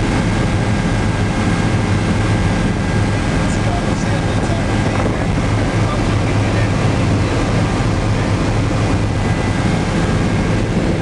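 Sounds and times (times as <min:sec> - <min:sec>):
helicopter engine and rotors droning: 0:00.0 - 0:11.0.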